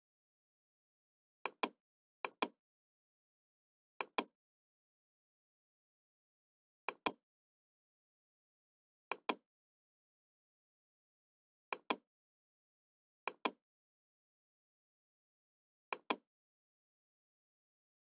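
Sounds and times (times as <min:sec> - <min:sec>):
computer mouse clicking: 0:04.0 - 0:04.3, 0:11.7 - 0:12.0, 0:15.9 - 0:16.2.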